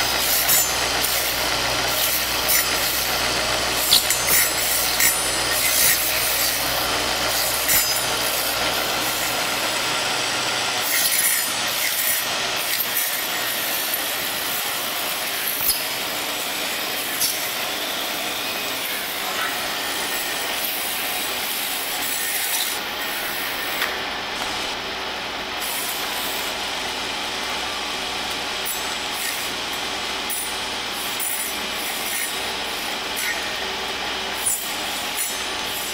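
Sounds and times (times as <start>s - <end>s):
sharp machine clicks: 0.0s - 9.6s
cutting machine rasping whirr: 0.0s - 35.9s.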